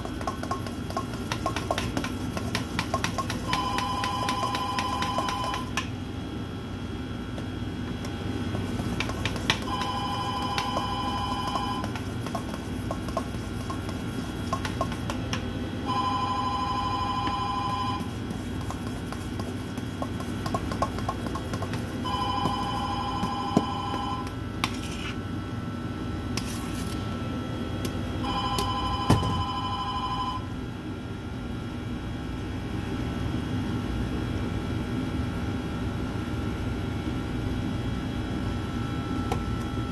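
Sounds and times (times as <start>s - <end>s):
steady low hum: 0.0s - 39.9s
telephone ringing: 3.4s - 5.7s, 9.7s - 11.9s, 15.9s - 18.1s, 22.0s - 24.3s, 28.2s - 30.4s.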